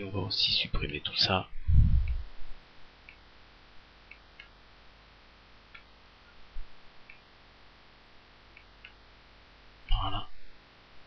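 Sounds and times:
low hum: 1.4s - 3.2s
computer mouse clicks: 4.1s - 4.6s.

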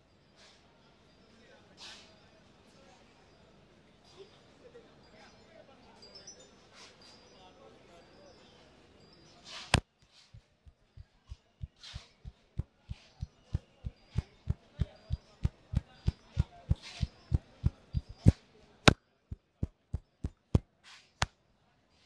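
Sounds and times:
hand tapping and slapping on head: 10.4s - 18.4s, 19.3s - 20.6s.

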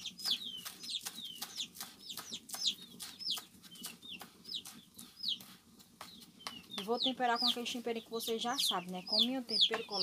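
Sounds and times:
knife chopping on wooden board: 0.0s - 6.6s
chickens peeping: 0.0s - 10.0s.

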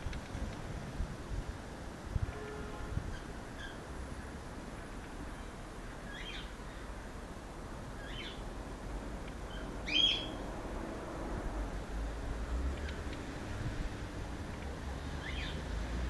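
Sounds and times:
bird chirping: 5.4s - 6.8s, 8.0s - 8.4s, 9.4s - 10.4s, 15.2s - 15.7s.

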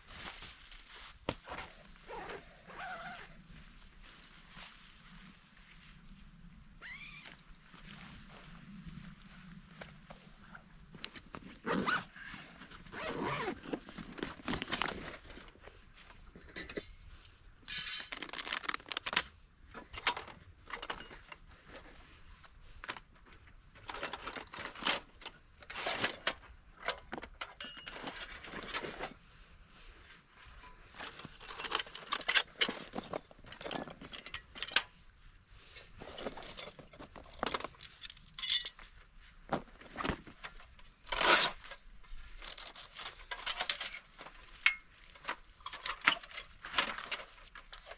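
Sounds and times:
gear clinking and knocking: 31.4s - 35.0s.

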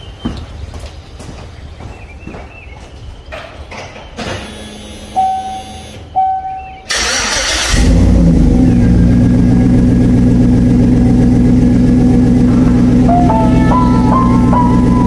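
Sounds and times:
car engine starting and running: 4.4s - 15.0s
short beeps: 5.0s - 6.9s.

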